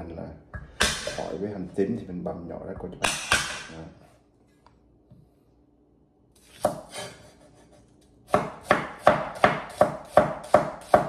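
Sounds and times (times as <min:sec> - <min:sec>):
cleaver chopping on wooden board: 0:08.3 - 0:11.0.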